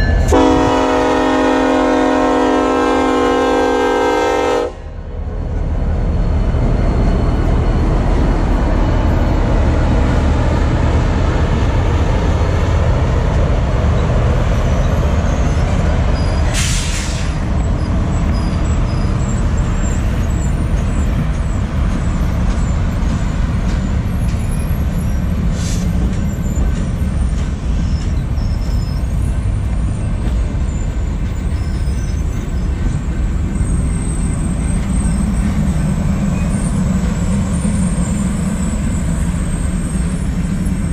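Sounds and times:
train wheels rumbling on rails: 0.0s - 40.9s
short sharp air hiss: 16.5s - 17.4s, 25.5s - 25.9s.

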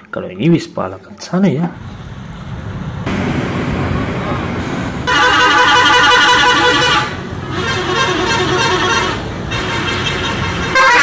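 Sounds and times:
bus horn blasts: 5.0s - 11.0s.

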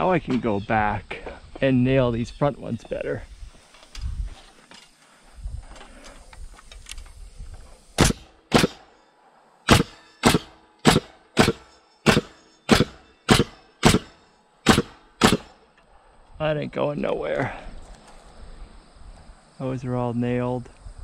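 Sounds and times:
pneumatic nailer shots: 7.9s - 9.0s, 9.6s - 15.6s.

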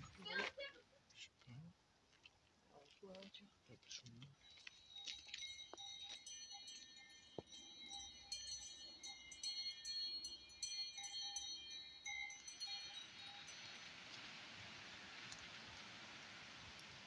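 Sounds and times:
cowbells jingling and clanking: 3.9s - 14.1s.

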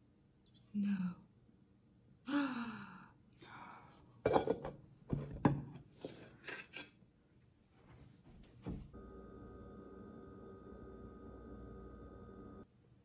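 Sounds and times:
metal pans clattering: 4.3s - 6.6s
steady hum: 8.9s - 12.9s.

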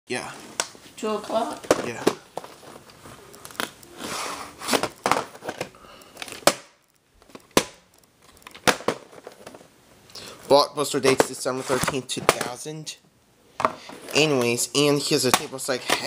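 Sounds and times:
rustling and crinkling: 0.3s - 9.8s.

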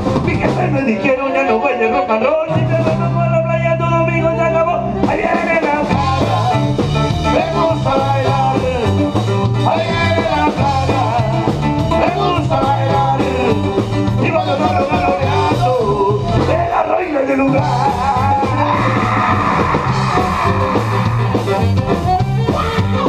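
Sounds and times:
drum kit: 0.0s - 1.2s, 2.4s - 4.3s, 4.9s - 23.0s
live band playing instrumental rock: 0.0s - 23.0s
alto saxophone: 17.7s - 23.0s.

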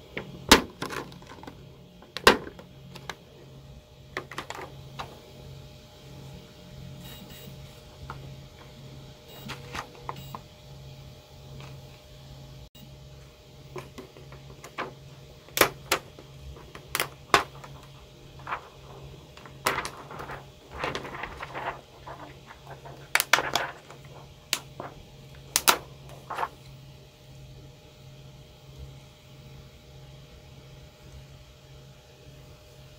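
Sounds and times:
steady low hum: 0.0s - 32.9s
plastic sheet rustling and clicking: 13.8s - 26.7s.

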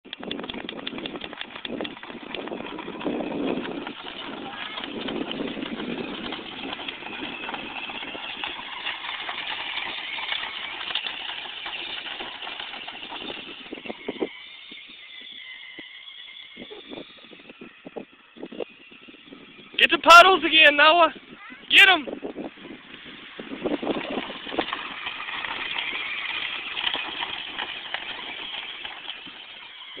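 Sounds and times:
knocks and rattles: 0.0s - 14.3s, 22.2s - 30.0s
ride-on quad motor: 0.0s - 30.0s
small engine buzzing: 0.1s - 30.0s.

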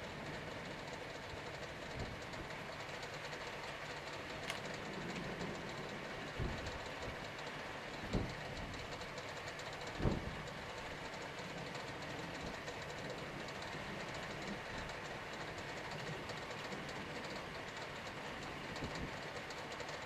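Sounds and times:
wind noise on microphone: 8.0s - 8.4s, 10.0s - 10.3s.

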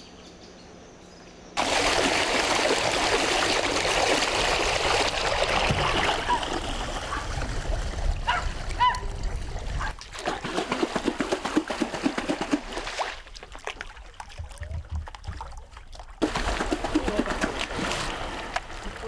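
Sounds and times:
river water sloshing and splashing: 1.6s - 19.0s
hand splashing in river water: 10.0s - 14.7s.

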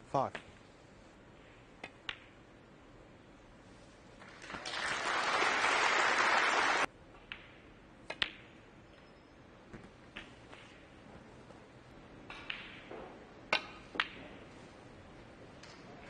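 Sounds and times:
audience applause: 4.2s - 6.9s
snooker balls clicking: 7.1s - 9.0s, 12.2s - 14.3s.

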